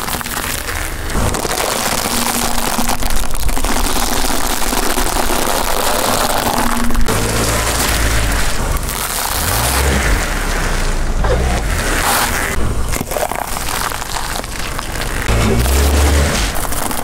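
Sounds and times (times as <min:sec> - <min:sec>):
car rumble: 0:00.0 - 0:17.0.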